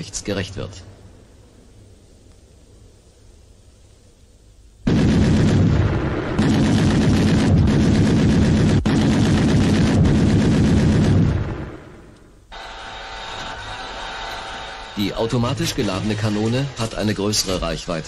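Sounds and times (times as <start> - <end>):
machine gun automatic fire: 4.9 - 12.0.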